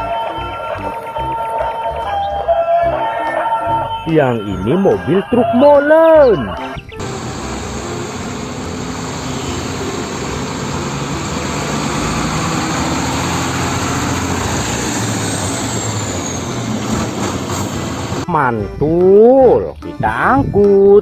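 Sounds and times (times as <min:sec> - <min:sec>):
heavy trucks driving past: 0:06.8 - 0:18.3.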